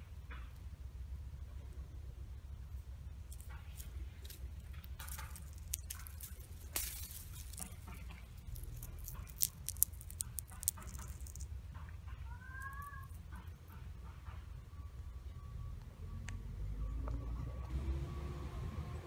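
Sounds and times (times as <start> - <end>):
low steady rumble: 0.0 - 19.0
dry seed pods crackling: 2.7 - 11.6, 12.4 - 13.6.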